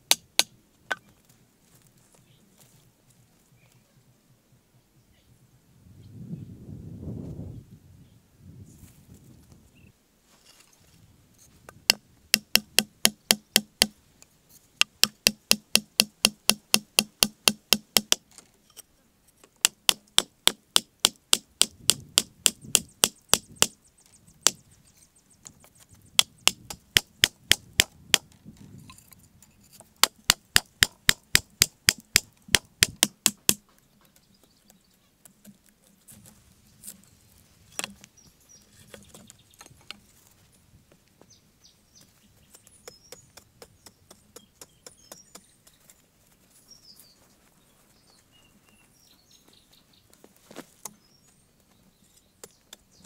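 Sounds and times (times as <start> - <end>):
wooden mallet striking wooden stakes: 0.0 - 1.1, 11.7 - 14.0, 14.8 - 18.4, 19.4 - 23.8, 24.4 - 24.6, 26.1 - 28.4, 29.8 - 33.8, 37.7 - 38.1, 42.5 - 45.8.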